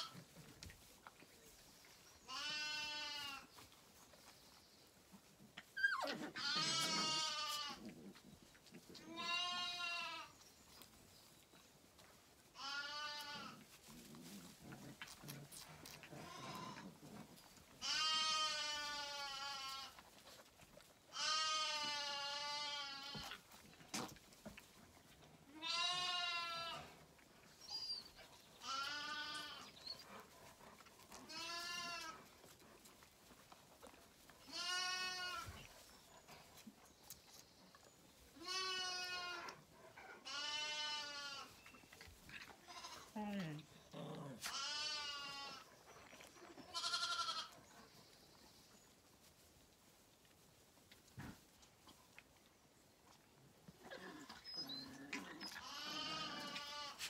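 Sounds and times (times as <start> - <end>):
lambs bleating: 2.3 - 3.5, 5.8 - 7.9, 9.0 - 10.3, 12.6 - 13.7, 16.0 - 17.0, 17.8 - 20.0, 21.1 - 23.5, 25.5 - 27.0, 28.6 - 29.7, 31.1 - 32.2, 34.4 - 35.8, 38.4 - 39.6, 40.2 - 41.6, 42.4 - 43.2, 44.4 - 45.7, 46.5 - 47.6, 55.0 - 57.0.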